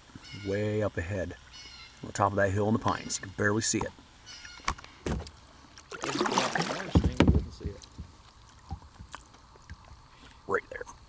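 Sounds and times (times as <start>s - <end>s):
paddle splashing in water: 5.0s - 7.8s
paddle knocks: 6.0s - 8.1s
heavy thumps: 6.8s - 8.1s.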